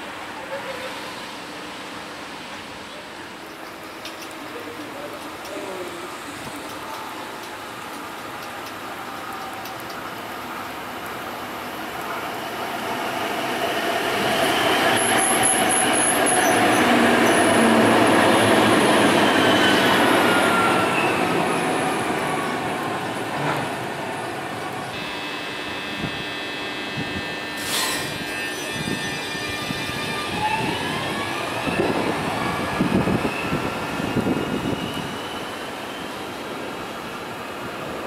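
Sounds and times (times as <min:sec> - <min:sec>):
tram wheels on rail passing: 0:00.0 - 0:25.0, 0:27.6 - 0:38.0
tram hum with held tones: 0:13.4 - 0:37.6
falling pitch motor whine: 0:24.9 - 0:35.5.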